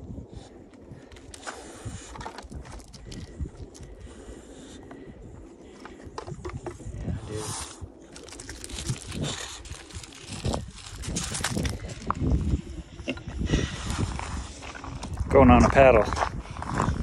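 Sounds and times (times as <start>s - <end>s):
paws crunching on gravel: 1.0s - 5.0s, 7.9s - 12.8s, 13.6s - 17.0s.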